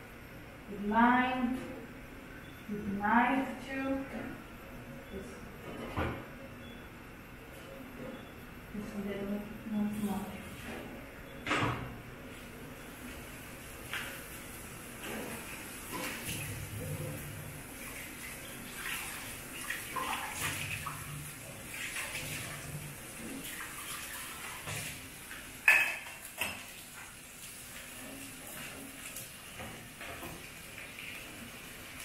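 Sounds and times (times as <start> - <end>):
running water: 15.4 - 32.0
pots and utensils clinking: 25.6 - 27.1.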